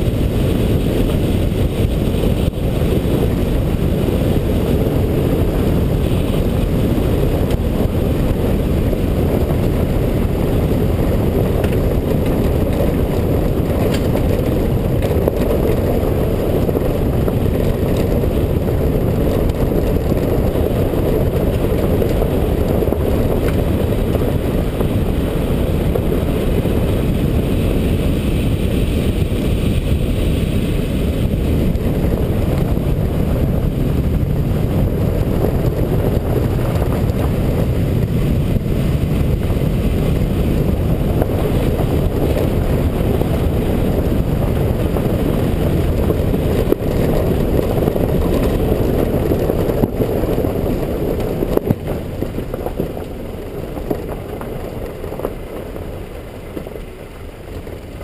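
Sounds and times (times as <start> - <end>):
car road and wind rumble: 0.0 - 58.0.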